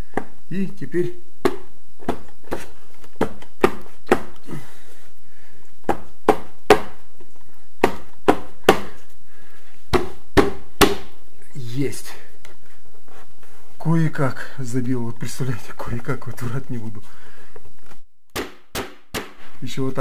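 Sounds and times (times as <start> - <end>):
wall panel being knocked: 9.9 - 11.1.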